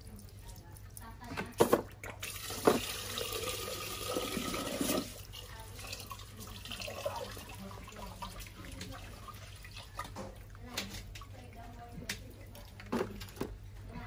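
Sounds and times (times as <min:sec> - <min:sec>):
tap water running into pot: 0:01.4 - 0:11.5.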